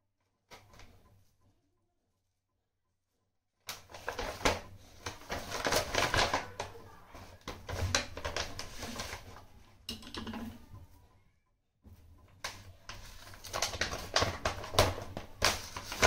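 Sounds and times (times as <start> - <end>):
plastic bag crinkling: 3.8 - 9.5, 12.5 - 16.0.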